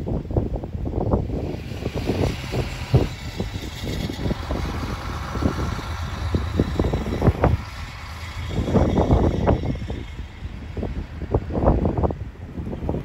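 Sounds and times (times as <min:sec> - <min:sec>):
wind buffeting microphone: 0:00.0 - 0:13.0
hiss of wind-driven snow: 0:00.9 - 0:13.0.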